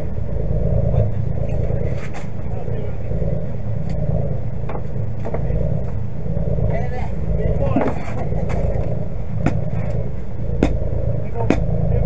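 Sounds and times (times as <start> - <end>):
boat engine rumbling: 0.0 - 12.0.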